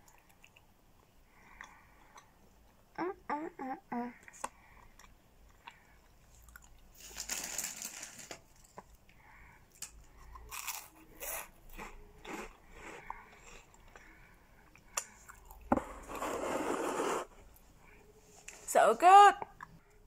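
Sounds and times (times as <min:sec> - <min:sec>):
person chewing and biting food: 0:09.8 - 0:14.0.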